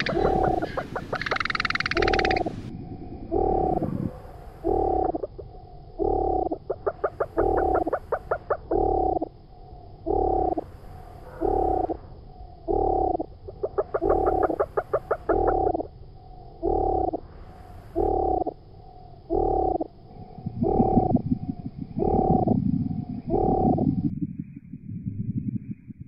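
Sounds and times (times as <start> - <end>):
rattling frog trill: 0.0 - 2.6, 6.0 - 9.3, 10.0 - 10.6, 11.4 - 12.0, 12.7 - 15.9
frog croaking: 0.0 - 24.1.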